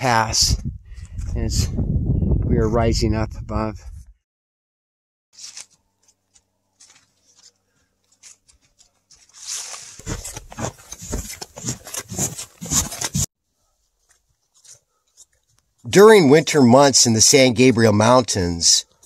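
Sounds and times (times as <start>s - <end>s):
boots crunching through snow: 9.1s - 13.3s.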